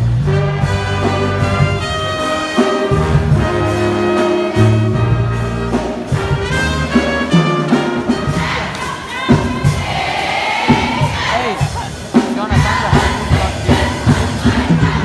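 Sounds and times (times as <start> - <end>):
brass band fight song: 0.0 - 15.0.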